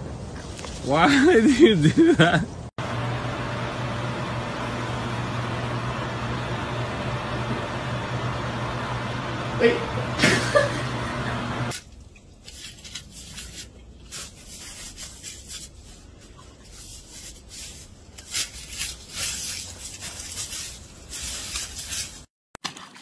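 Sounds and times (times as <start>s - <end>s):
dog crunching through snow: 12.4s - 22.3s.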